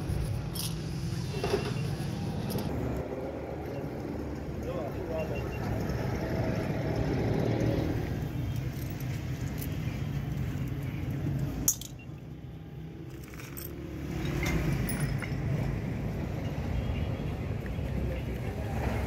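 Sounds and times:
metal parts clinking: 0.2s - 1.1s, 1.8s - 2.7s, 11.6s - 12.2s, 13.1s - 15.5s.

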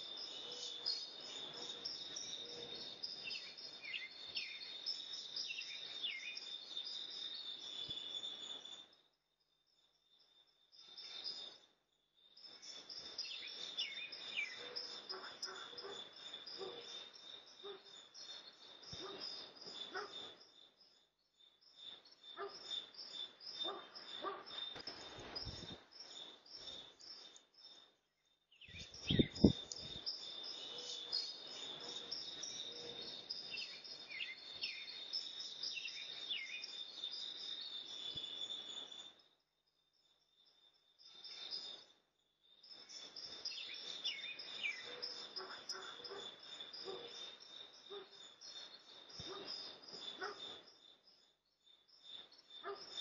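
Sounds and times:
birds chirping: 28.6s - 38.9s.

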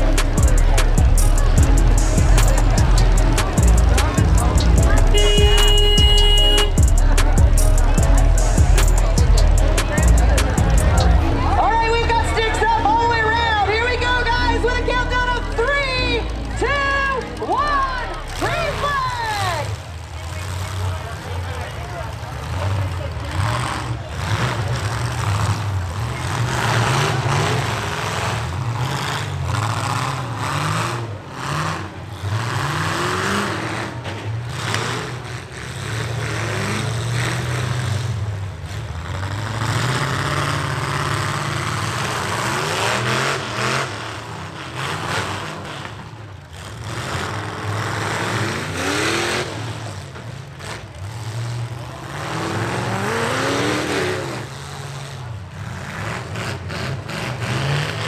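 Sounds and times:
constant engine rumble: 0.0s - 58.0s
truck engines revving: 0.0s - 58.0s.

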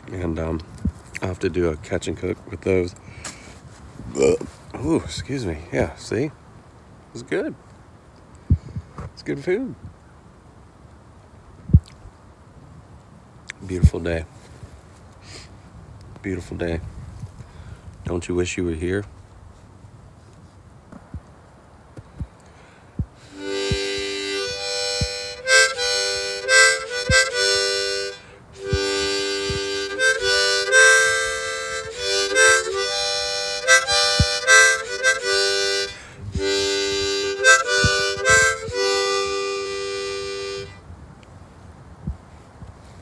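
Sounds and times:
harmonica tune: 23.2s - 40.8s.

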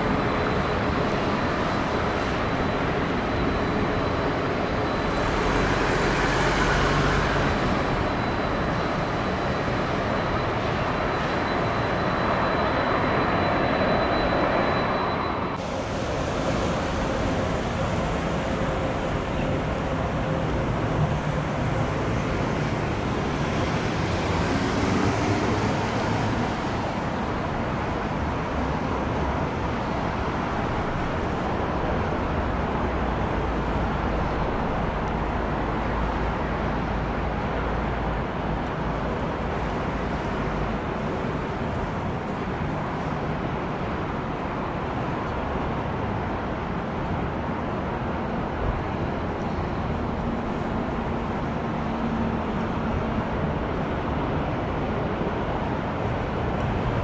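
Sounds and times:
engine and traffic roar: 0.0s - 57.0s.

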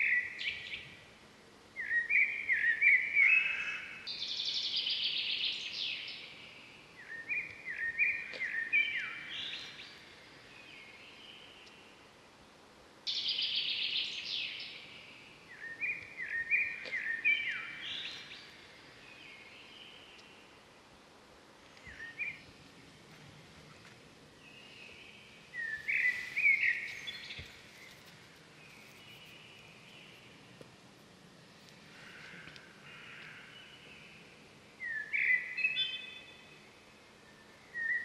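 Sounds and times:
outdoor background hiss: 0.0s - 38.0s
birds chirping: 1.8s - 12.0s, 13.1s - 20.7s, 24.4s - 30.5s.

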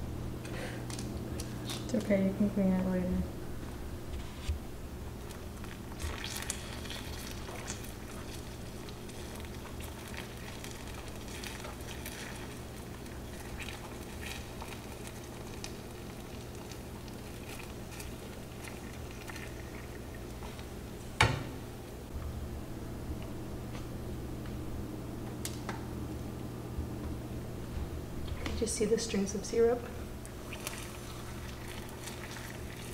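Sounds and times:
low hum: 0.0s - 32.9s
sugar syrup bubbling and crackling: 5.0s - 21.0s, 30.1s - 32.9s.

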